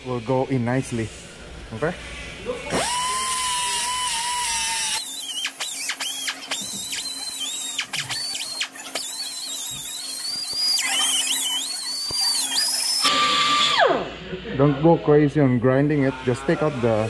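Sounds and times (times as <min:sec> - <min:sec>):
die grinder whining on metal: 0:02.6 - 0:14.1.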